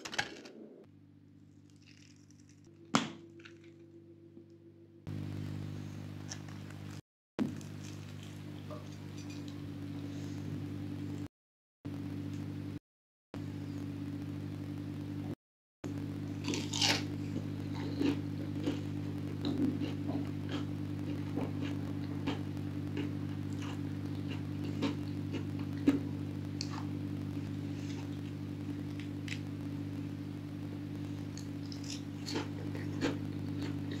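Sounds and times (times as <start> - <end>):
low hum: 0.0 - 11.3, 11.9 - 12.8, 13.4 - 34.0
crunchy food being chewed: 1.5 - 2.7, 6.2 - 9.6, 16.3 - 29.6, 30.9 - 34.0.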